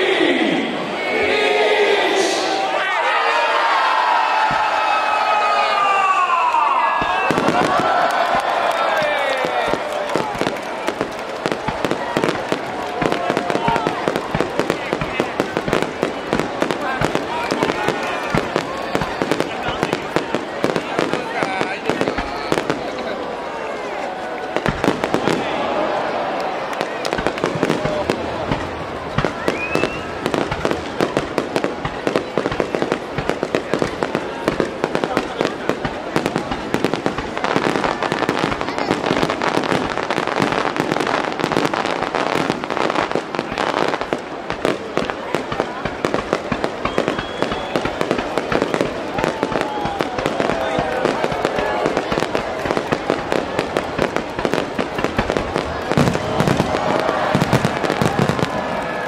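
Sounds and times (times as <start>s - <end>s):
firework shells crackling: 6.8s - 23.1s, 26.5s - 59.0s
low firework booms: 24.6s - 25.6s, 27.0s - 58.9s
rising firework whistle: 29.2s - 30.4s, 46.8s - 52.2s.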